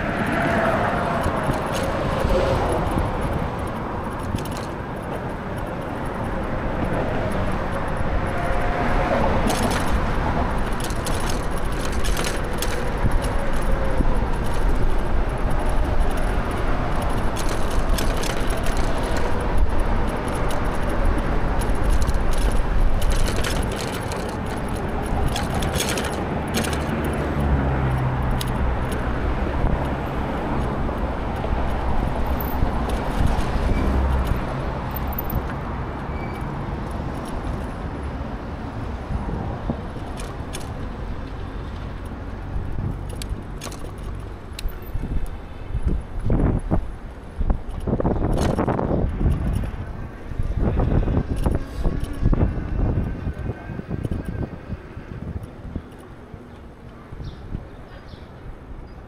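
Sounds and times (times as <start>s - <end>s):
motor vehicle low hum: 0.0s - 58.8s
road and wind rush: 0.0s - 59.0s
light rattling clicks: 1.1s - 8.7s, 9.4s - 35.6s, 40.0s - 45.4s.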